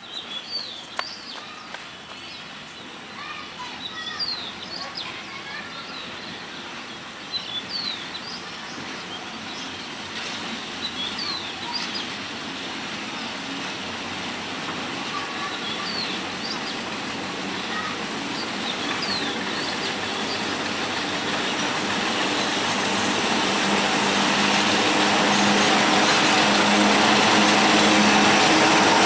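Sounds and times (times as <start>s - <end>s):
birds chirping downward calls: 0.0s - 12.2s, 15.0s - 29.0s
diesel locomotive and train: 0.0s - 29.0s.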